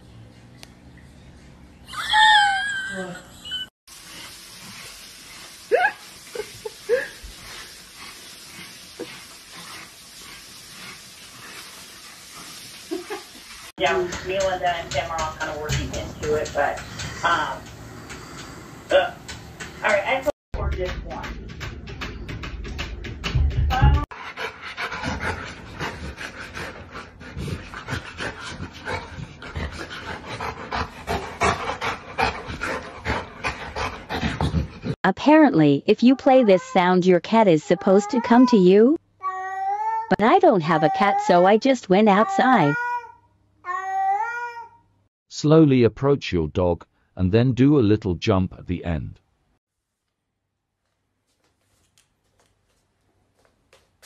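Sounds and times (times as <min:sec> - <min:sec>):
dog panting: 0:07.3 - 0:18.6, 0:24.1 - 0:35.0.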